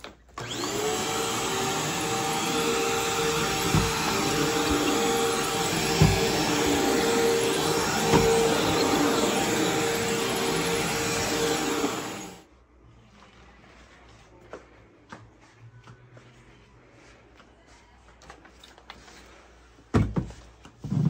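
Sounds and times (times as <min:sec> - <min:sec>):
vacuum cleaner motor running: 0:00.4 - 0:12.4.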